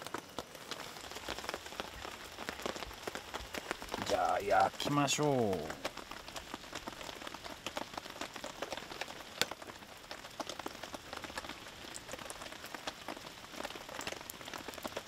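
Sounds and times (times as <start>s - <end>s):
rain pattering: 0.0s - 15.0s.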